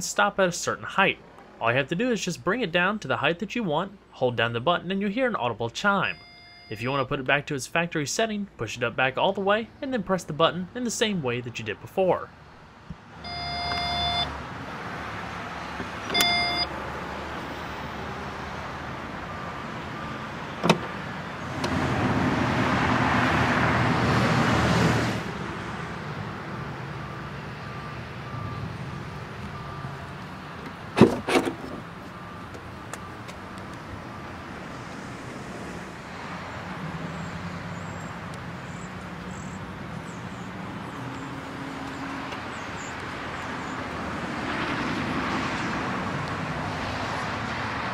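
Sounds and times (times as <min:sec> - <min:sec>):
outdoor background noise: 0:00.0 - 0:47.9
faint repeating warning beep: 0:06.0 - 0:06.9, 0:13.2 - 0:14.3, 0:16.1 - 0:16.7, 0:19.2 - 0:20.2, 0:27.0 - 0:30.2, 0:32.0 - 0:33.3
power liftgate motor running: 0:20.5 - 0:21.9
car door latch double click: 0:20.6 - 0:21.0.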